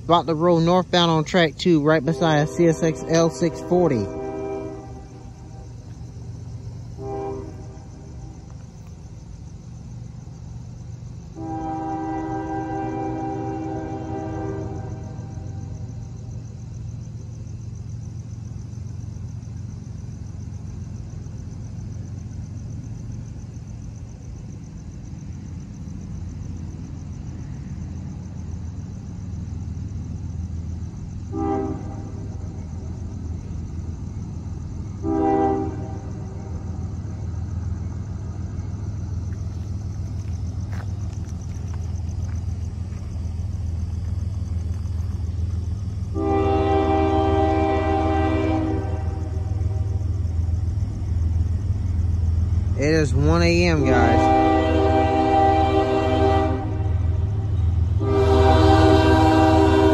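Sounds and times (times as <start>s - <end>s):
freight cars rumbling over rails: 0.0s - 59.9s
locomotive horn blasts: 2.0s - 5.7s, 6.9s - 8.3s, 11.4s - 15.6s, 31.3s - 32.4s, 35.0s - 36.5s, 46.1s - 50.0s, 52.9s - 59.9s.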